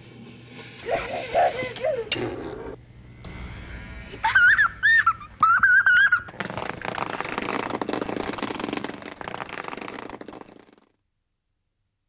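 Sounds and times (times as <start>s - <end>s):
child squealing: 4.2s - 6.3s.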